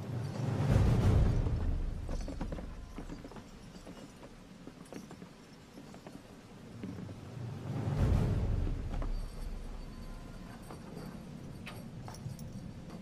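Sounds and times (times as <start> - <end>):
chains clinking: 0.0 - 7.2, 8.8 - 13.0
shuffling footsteps: 1.3 - 7.8.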